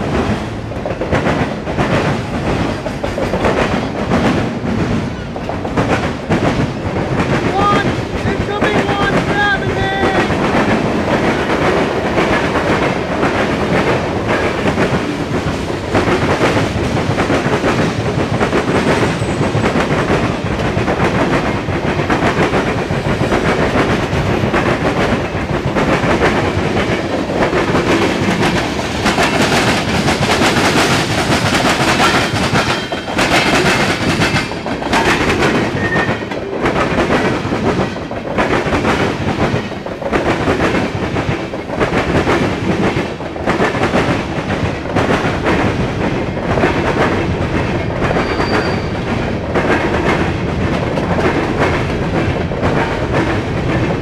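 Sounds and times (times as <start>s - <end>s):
train cars rumbling on track: 0.0s - 54.0s
train wheels clacking over rail joints: 0.0s - 54.0s.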